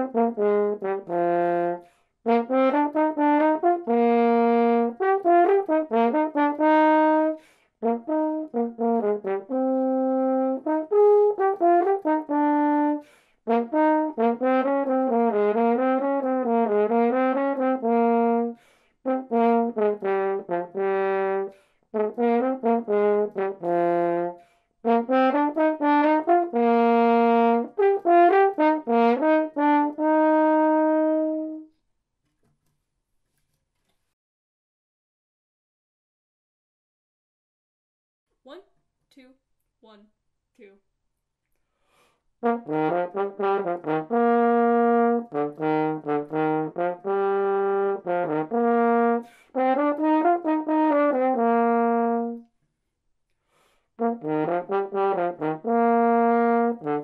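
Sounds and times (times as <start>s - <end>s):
solo french horn melody: 0.0s - 31.8s, 42.4s - 52.5s, 53.9s - 57.0s.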